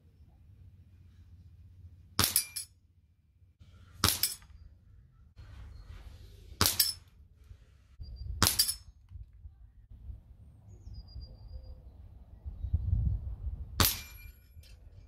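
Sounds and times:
air rifle shots: 4.0s - 4.5s, 6.6s - 7.0s, 8.4s - 8.8s.

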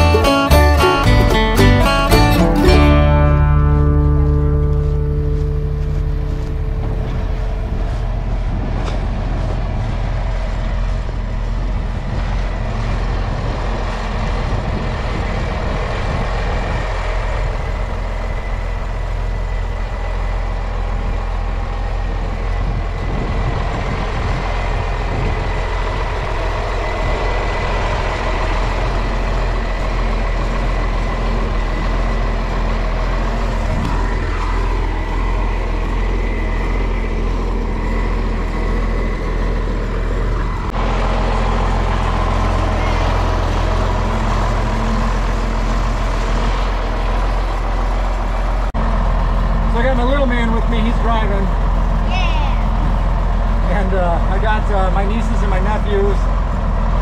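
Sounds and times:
tractor engine running: 0.0s - 57.0s
faint steady whine: 3.4s - 40.8s.

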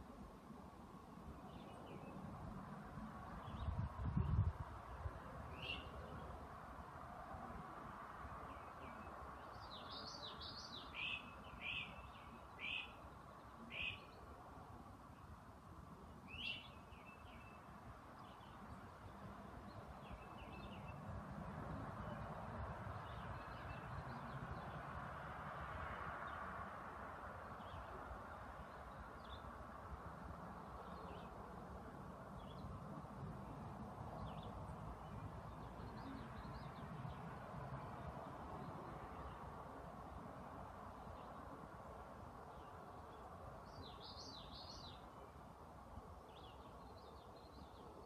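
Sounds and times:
faint bird chirps: 8.5s - 14.3s, 16.2s - 18.7s.

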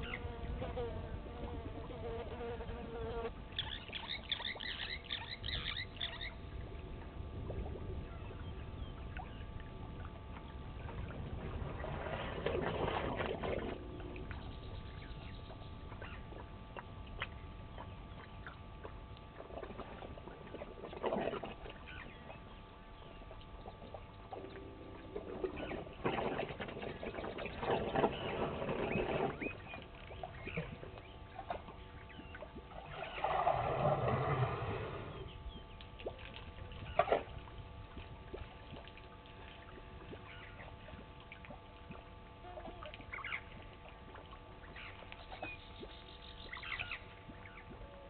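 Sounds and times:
elephant slurping water: 10.8s - 14.4s, 19.4s - 21.9s, 24.4s - 40.4s
elephant squirting water: 11.1s - 14.2s, 32.7s - 35.3s.

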